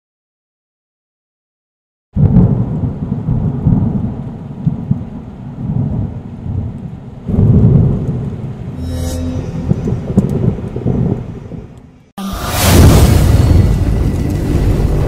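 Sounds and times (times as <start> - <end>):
steady rain: 2.2 - 8.7
thunder rumbling: 2.2 - 8.8, 9.5 - 15.0.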